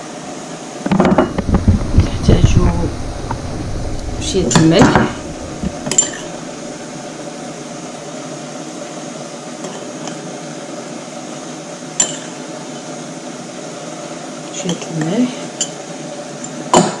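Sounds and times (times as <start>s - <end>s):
steady hiss: 1.2s - 8.4s
kitchen item clinking: 5.8s - 6.4s.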